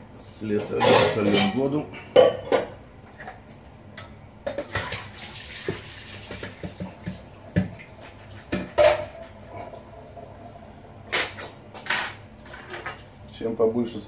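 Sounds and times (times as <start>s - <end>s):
water splashing into sink: 4.5s - 9.0s
plastic bowl knocking sink: 4.6s - 7.8s.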